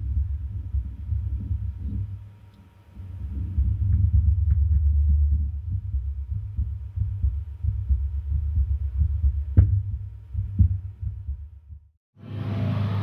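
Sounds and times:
muffled low rumbling: 0:00.0 - 0:12.0
soft thumps: 0:03.1 - 0:11.9.

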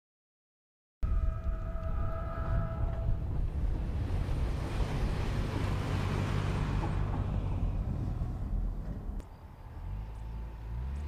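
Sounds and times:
wind rumble on microphone: 0:01.0 - 0:09.2
vehicle driving past on dirt: 0:01.1 - 0:11.0.

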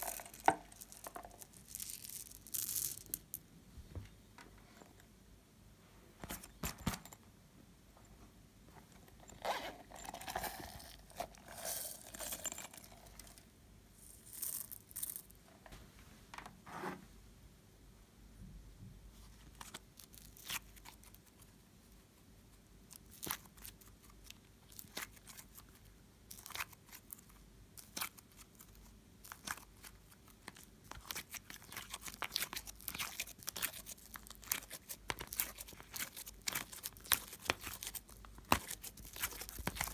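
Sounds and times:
slime squishing and crackling: 0:29.3 - 0:39.9.

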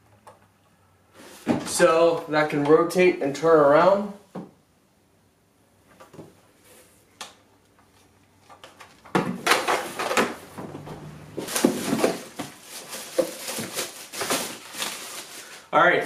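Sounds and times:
plastic bag crinkling: 0:11.4 - 0:15.8.

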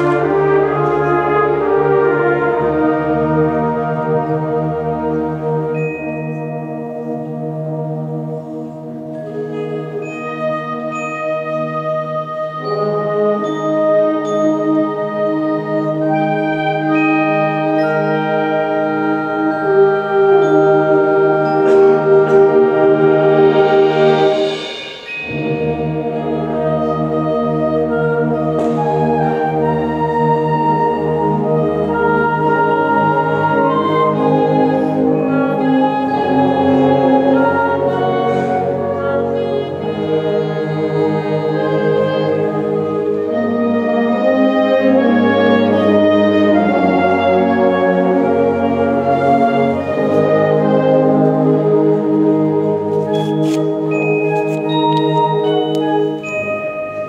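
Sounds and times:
concert band playing sustained chords: 0:00.0 - 0:57.0.

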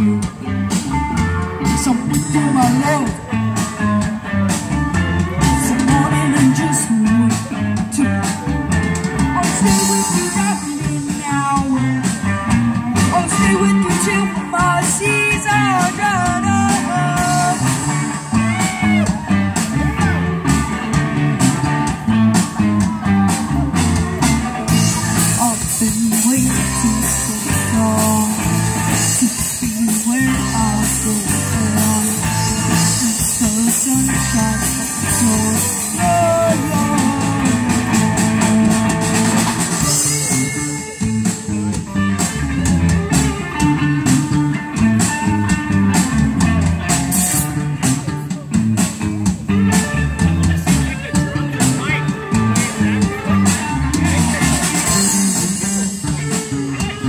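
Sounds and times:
live rock band playing: 0:00.0 - 0:57.0.

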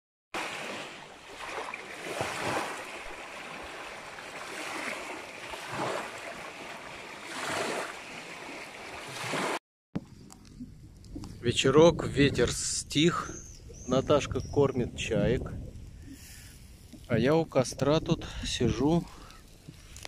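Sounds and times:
small waves washing on shore: 0:00.4 - 0:09.6
strong wind: 0:10.6 - 0:20.0.

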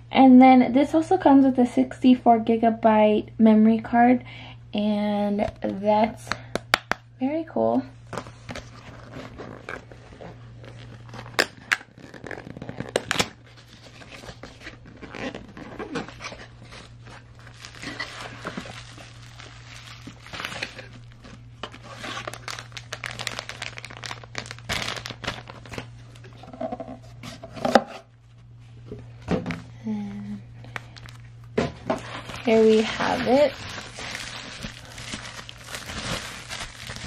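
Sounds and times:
cardboard and bubble wrap rustling: 0:08.0 - 0:28.5, 0:30.7 - 0:37.0.

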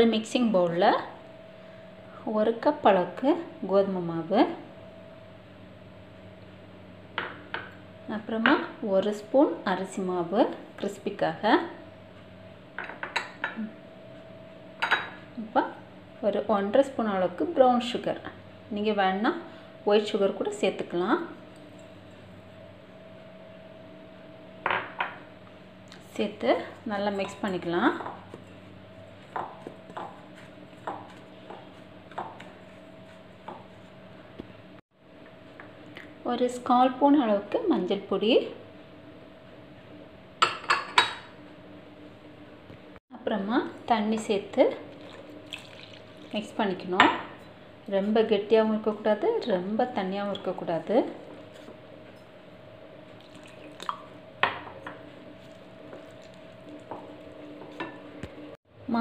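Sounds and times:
wooden spoon stirring flour in bowl: 0:26.1 - 0:34.1, 0:50.2 - 0:51.8, 0:55.1 - 0:57.9.

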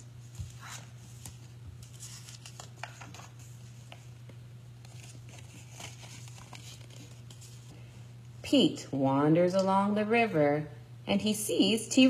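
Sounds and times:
paper rustling: 0:00.0 - 0:07.8
low room hum: 0:00.0 - 0:12.0.

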